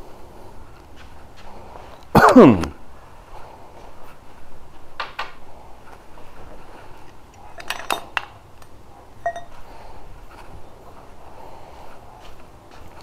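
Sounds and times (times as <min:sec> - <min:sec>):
scrap steel clinking: 0:07.5 - 0:08.2, 0:09.2 - 0:09.6.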